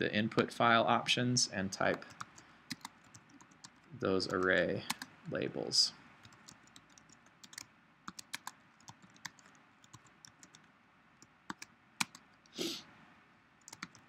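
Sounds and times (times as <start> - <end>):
typing on computer keyboard: 1.9 - 5.1, 6.2 - 12.2, 13.6 - 14.0
brief hiss: 12.6 - 12.9.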